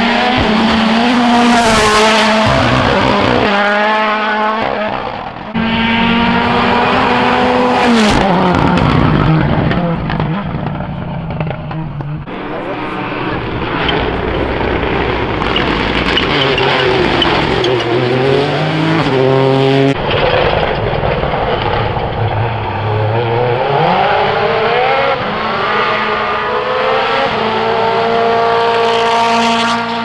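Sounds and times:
cars passing by: 0:00.0 - 0:20.6
rally car engines racing: 0:00.0 - 0:30.0.

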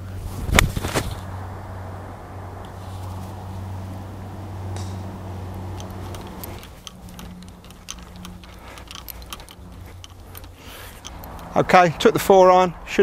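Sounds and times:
low steady hum: 0:00.0 - 0:12.9
golf clubs clinking in bag: 0:04.9 - 0:11.6.

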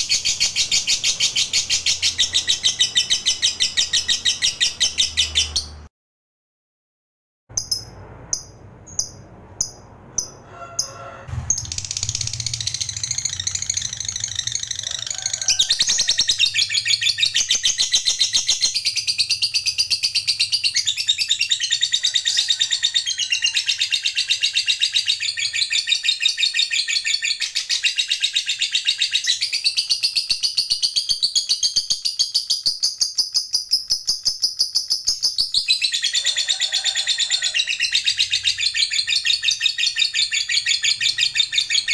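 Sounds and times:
lovebird chirps: 0:00.0 - 0:05.9, 0:07.5 - 0:36.4
lovebird fast chattering trill: 0:11.3 - 0:22.3.

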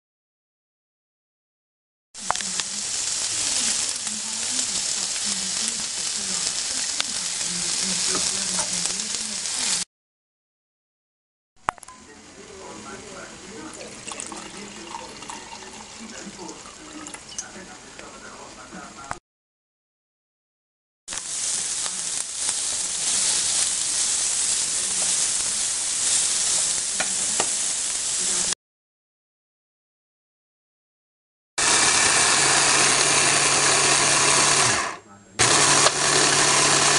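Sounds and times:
vegetables sizzling in a frying pan: 0:02.2 - 0:09.9, 0:14.6 - 0:14.8, 0:21.1 - 0:28.6, 0:31.6 - 0:36.9.

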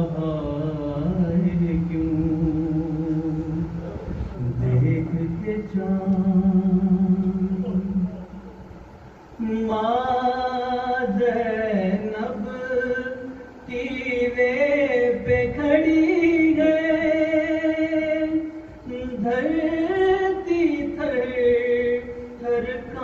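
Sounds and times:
man chanting a lament: 0:00.0 - 0:08.6.

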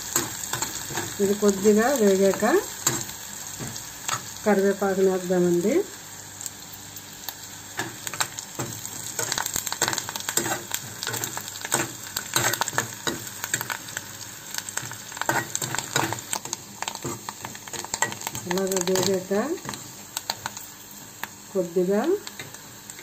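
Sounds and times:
food sizzling in hot oil: 0:00.0 - 0:23.0
spatula scraping a pan: 0:07.8 - 0:13.7.

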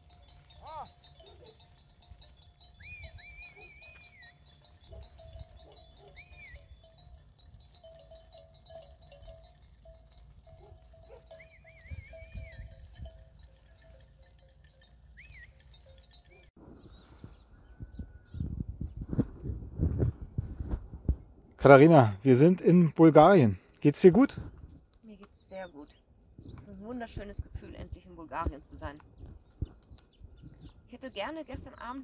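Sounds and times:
bells ringing: 0:00.0 - 0:16.6.

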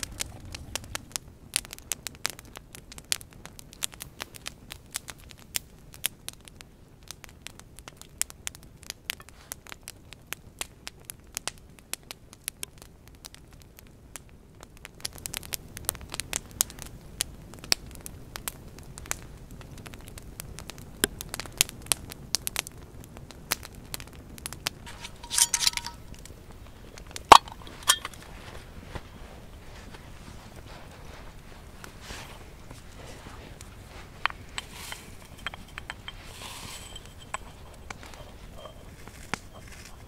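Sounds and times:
low rush of burning: 0:00.0 - 0:06.0, 0:22.9 - 0:40.0
campfire crackling and popping: 0:00.0 - 0:40.0.

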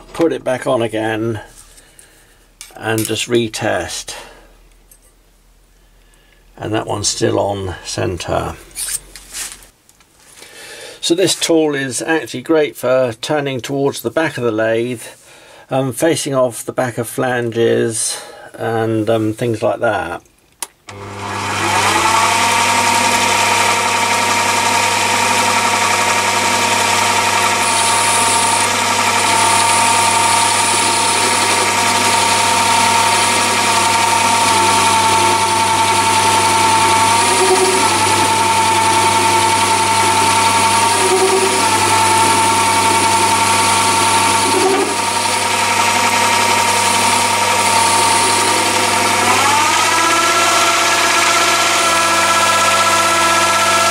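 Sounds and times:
lathe motor whine: 0:20.9 - 0:53.9
tool cutting spinning metal: 0:20.9 - 0:53.9.

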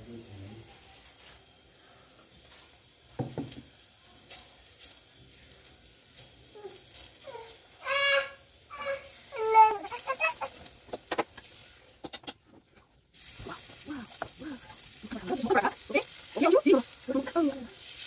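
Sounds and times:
bread sizzling: 0:00.0 - 0:18.0
toddler squealing: 0:06.6 - 0:10.6
woman's voice: 0:13.5 - 0:17.7.

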